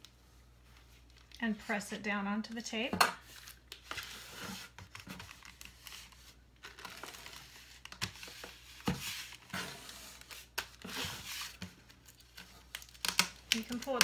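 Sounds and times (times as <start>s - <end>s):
cellophane crinkling: 10.1s - 14.0s.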